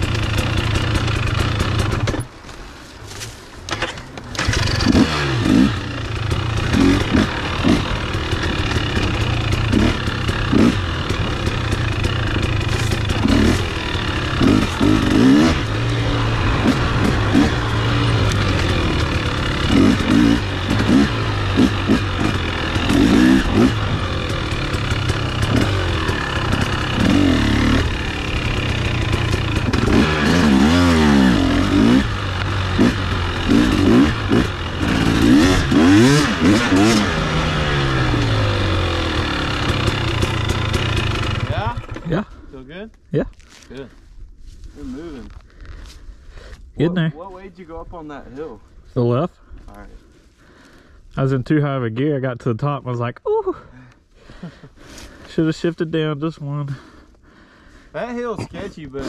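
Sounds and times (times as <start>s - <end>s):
dirt bike engine revving: 0.0s - 2.3s, 3.7s - 42.2s.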